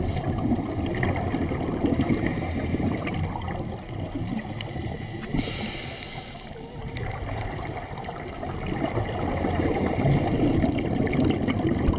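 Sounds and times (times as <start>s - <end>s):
underwater bubbling and gurgling: 0.0s - 11.9s
scuba breathing hiss: 2.0s - 3.4s, 4.3s - 6.7s, 9.3s - 10.8s.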